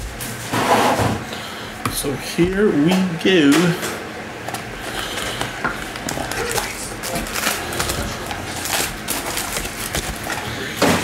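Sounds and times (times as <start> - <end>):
foil packs crinkling and rustling: 4.8 - 11.0.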